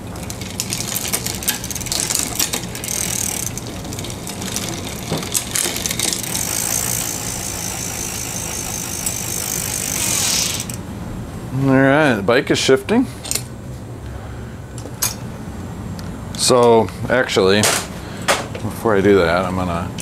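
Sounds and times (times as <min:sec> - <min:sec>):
bicycle drivetrain clicking and ratcheting: 0:00.0 - 0:10.8.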